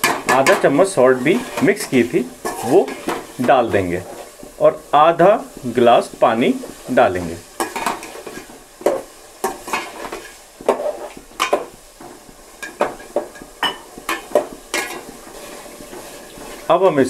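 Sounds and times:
metal ladle scraping cooking pot: 7.6s - 16.6s.

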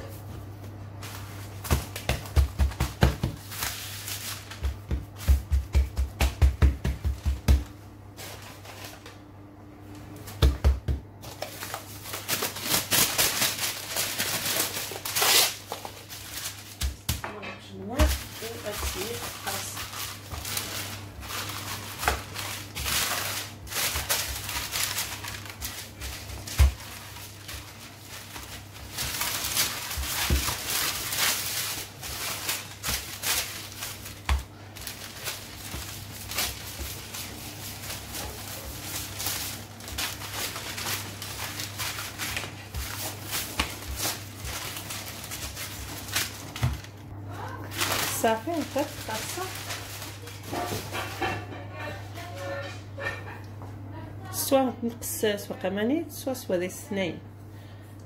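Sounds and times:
parchment paper rustling: 0.0s - 9.2s, 11.2s - 52.4s
hands patting dough: 0.1s - 8.9s, 10.2s - 13.6s, 15.6s - 47.0s.

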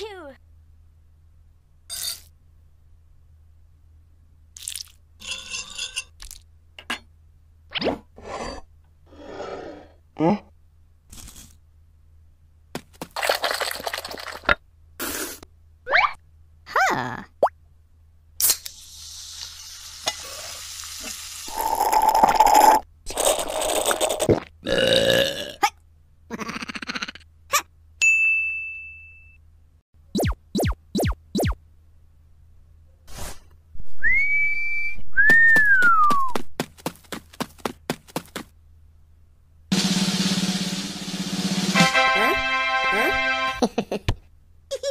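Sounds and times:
cartoon zaps dropping in pitch: 30.1s - 31.6s
sliding whistle: 34.0s - 36.4s.

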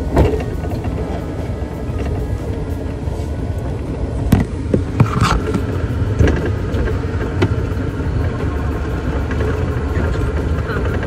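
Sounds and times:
cart rattling knocks: 0.0s - 2.3s
golf cart rumbling: 0.0s - 11.0s.

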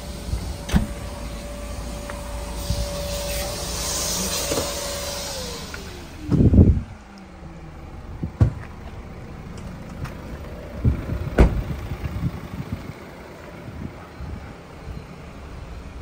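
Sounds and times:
car door thud: 0.6s - 1.1s, 8.2s - 8.7s, 11.3s - 11.8s.

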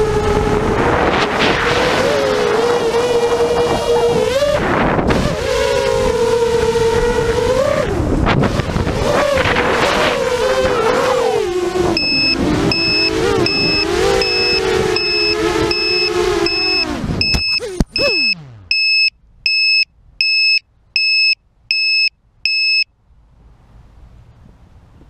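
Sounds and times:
electric motor whine: 12.0s - 18.4s
high electronic beeps: 12.0s - 22.8s.

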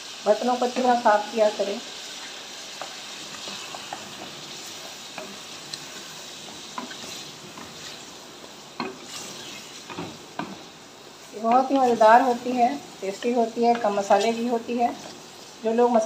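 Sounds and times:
meat sizzling in hot oil: 0.0s - 16.0s
wooden spoon stirring meat: 2.7s - 15.3s.

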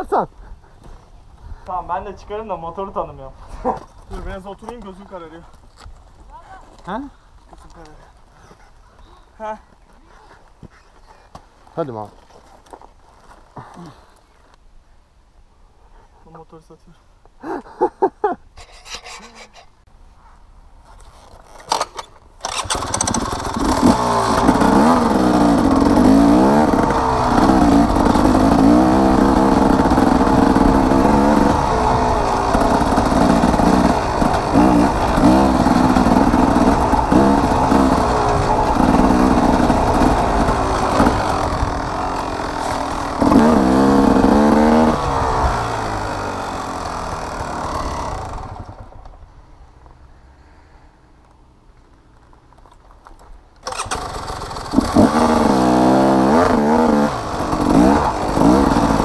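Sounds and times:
dirt bike engine revving: 22.4s - 49.0s, 53.6s - 59.0s.

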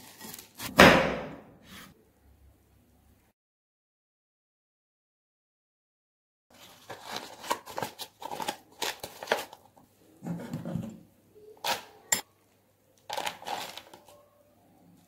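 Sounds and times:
spoon scraping puffed rice in bowl: 13.1s - 14.1s.

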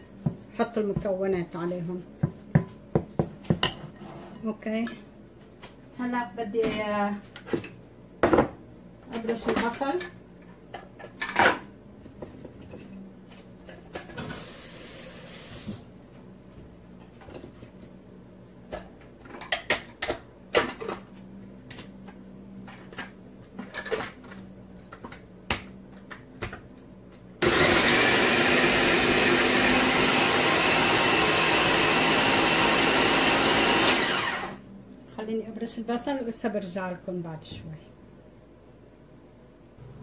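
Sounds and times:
food processor running: 27.4s - 34.6s.

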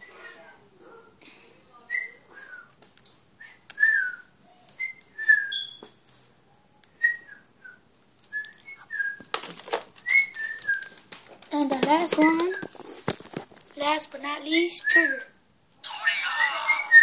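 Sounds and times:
high whistle-like chirps: 3.4s - 6.0s
rustling: 7.6s - 13.9s.

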